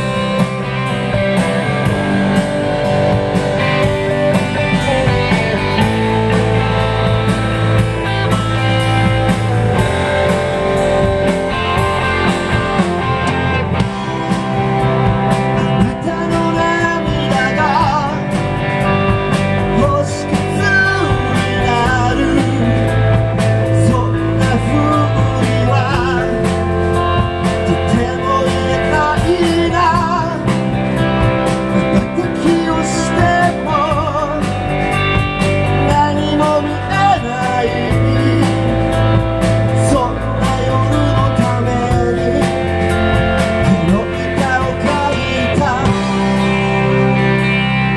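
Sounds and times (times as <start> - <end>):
drums and cymbals: 0.0 - 47.9
electric guitars: 0.0 - 47.9
person singing: 12.6 - 18.7, 19.5 - 34.8, 35.7 - 47.3.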